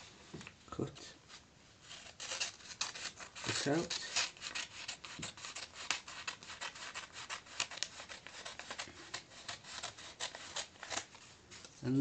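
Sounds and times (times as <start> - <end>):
paper rustling: 0.0 - 12.0
scissors snipping paper: 2.0 - 11.2.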